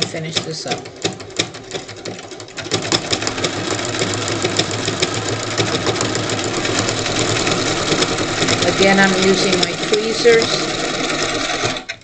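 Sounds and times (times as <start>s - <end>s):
electric sewing machine stitching: 0.0s - 12.0s.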